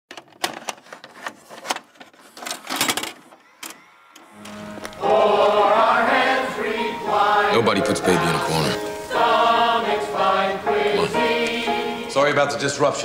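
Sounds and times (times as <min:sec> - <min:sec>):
music: 0:04.3 - 0:13.0.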